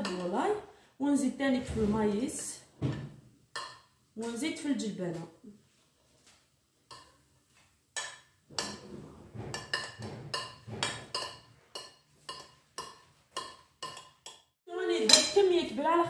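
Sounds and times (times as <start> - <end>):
spoon scraping ceramic plate: 8.6 - 14.2.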